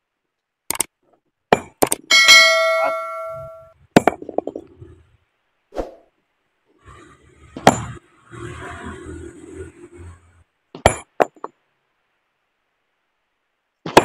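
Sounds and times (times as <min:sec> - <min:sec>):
sledgehammer hitting boulder: 0:01.5 - 0:02.0, 0:04.0 - 0:04.7, 0:10.8 - 0:11.4.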